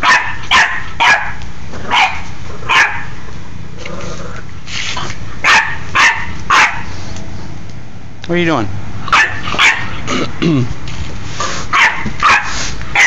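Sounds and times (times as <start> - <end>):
puppy barking: 0.0 - 3.2, 5.4 - 6.9, 9.1 - 10.0, 11.7 - 13.0.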